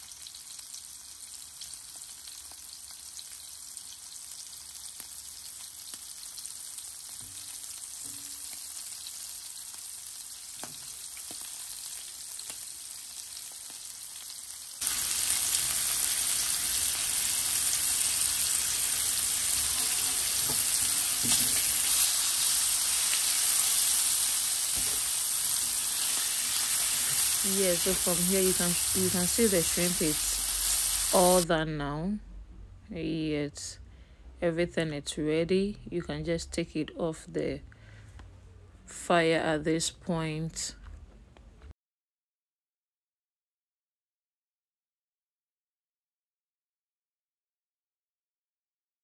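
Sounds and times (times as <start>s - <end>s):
shrimp sizzling in hot oil: 0.0s - 31.4s.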